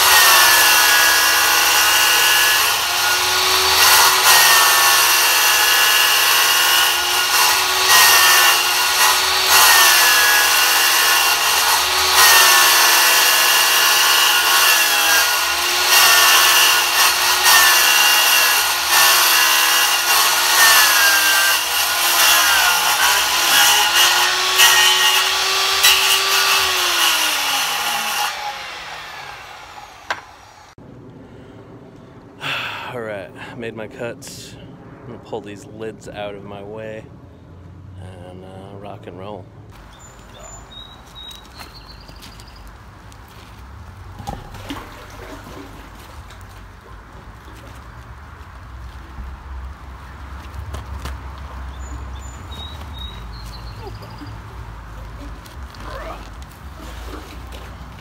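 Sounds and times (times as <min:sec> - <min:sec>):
power saw cutting plastic: 0:00.0 - 0:30.8.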